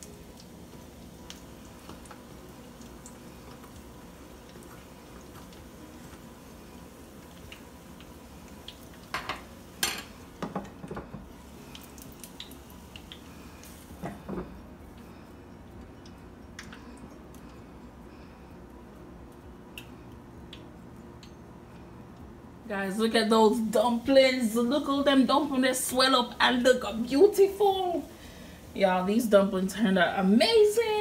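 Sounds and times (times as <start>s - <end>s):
food sizzling in oil: 0.0s - 16.6s.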